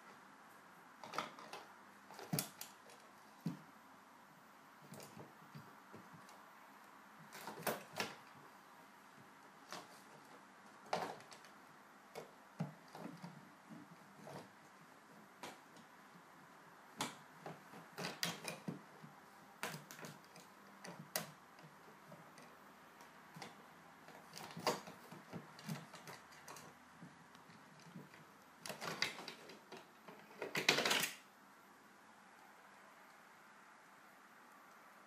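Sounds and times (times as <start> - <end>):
drawer clicking and knocking: 17.0 - 19.0, 28.6 - 31.2.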